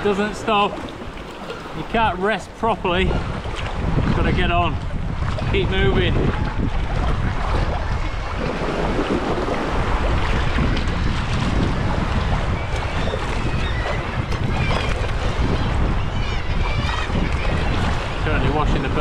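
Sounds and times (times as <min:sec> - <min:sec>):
water sloshing around kayak: 0:00.0 - 0:19.0
wind buffeting microphone: 0:00.0 - 0:19.0
faint seabird calls: 0:12.3 - 0:18.6.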